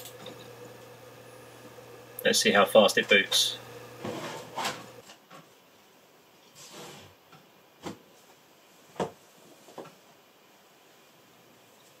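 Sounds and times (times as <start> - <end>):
soft brushing: 4.0 - 5.0.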